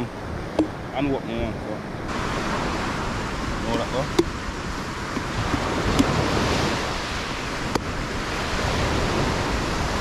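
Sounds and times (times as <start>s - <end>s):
surf washing on pebbles: 0.0s - 10.0s
wind on microphone: 0.0s - 10.0s.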